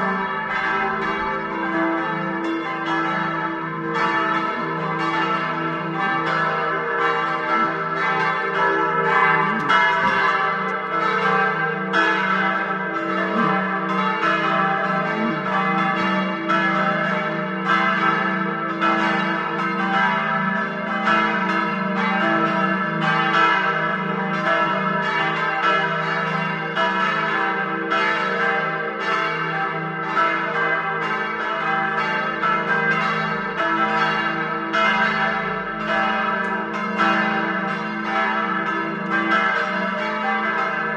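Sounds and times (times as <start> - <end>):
sustained bell hum: 0.0 - 17.4
church bells pealing: 0.0 - 40.9.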